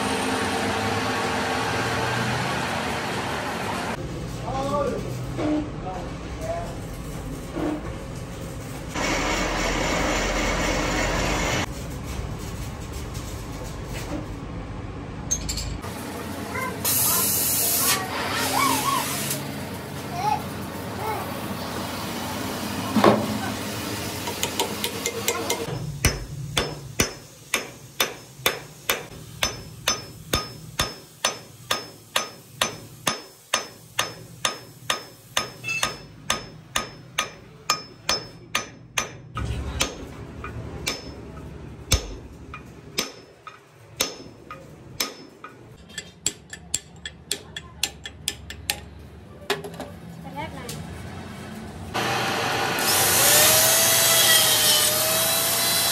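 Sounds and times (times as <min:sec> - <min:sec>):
hammer striking metal: 0:24.2 - 0:48.9.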